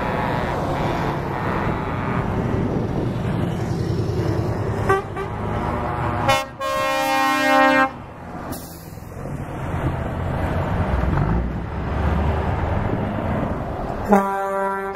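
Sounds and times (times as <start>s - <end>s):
truck horn: 0.0s - 2.8s, 4.8s - 5.6s, 6.2s - 8.1s, 14.0s - 14.9s
trucks driving past: 0.0s - 14.9s.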